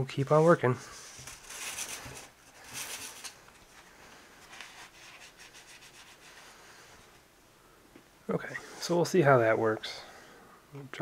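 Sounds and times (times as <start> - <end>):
sandpaper rubbing plastic: 4.5 - 6.4.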